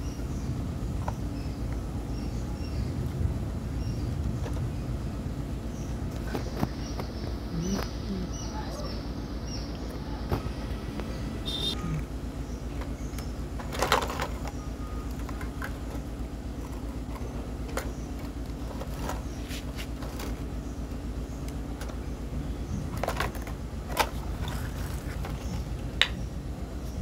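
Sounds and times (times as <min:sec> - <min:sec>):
steady low hum: 0:00.0 - 0:27.0
plastic toy vehicles clicking: 0:12.7 - 0:22.0, 0:22.7 - 0:26.2.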